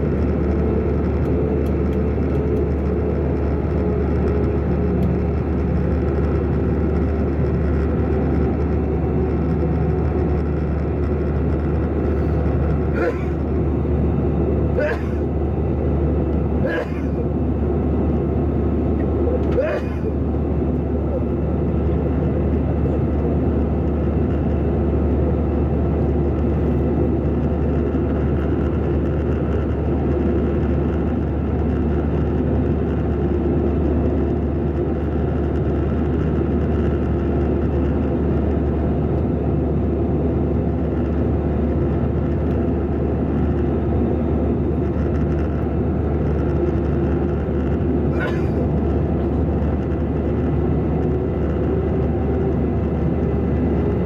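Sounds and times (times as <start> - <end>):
deep low rumble: 0.0 - 54.0
jet engines droning: 0.0 - 54.0.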